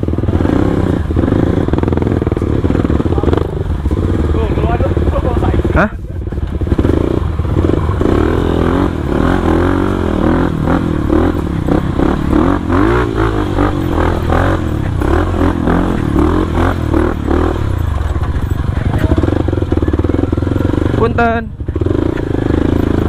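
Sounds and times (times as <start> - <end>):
motorcycle engine revving: 0.0 - 23.0.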